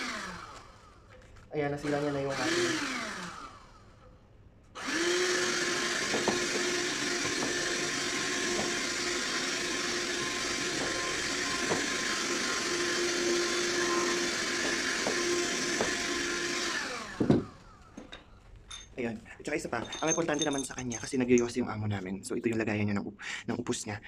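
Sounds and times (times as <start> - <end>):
handheld vacuum cleaner whine: 0.0 - 1.2, 1.8 - 4.0, 4.8 - 18.1.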